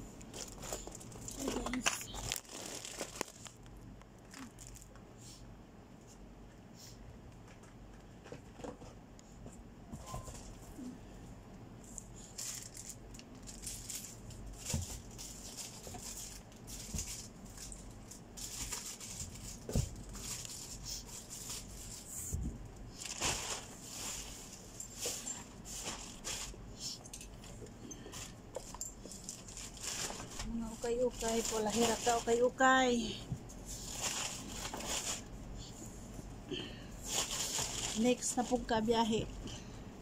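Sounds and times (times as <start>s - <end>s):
packaging rustling and crinkling: 0.2s - 5.0s, 12.2s - 22.1s, 22.9s - 26.6s, 28.1s - 32.9s, 33.6s - 35.3s, 37.0s - 38.6s.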